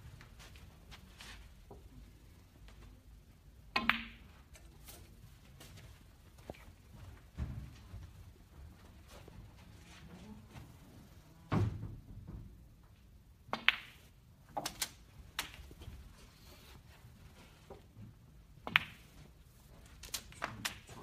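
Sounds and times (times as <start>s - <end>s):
snooker balls clicking: 3.6s - 4.7s, 13.4s - 16.0s, 17.6s - 19.3s.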